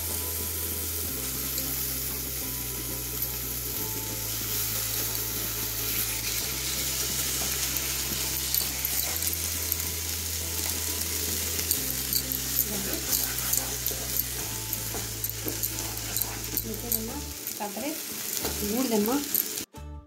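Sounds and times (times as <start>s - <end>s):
paste sizzling in hot oil: 0.0s - 19.7s
wooden spatula stirring: 11.5s - 17.1s.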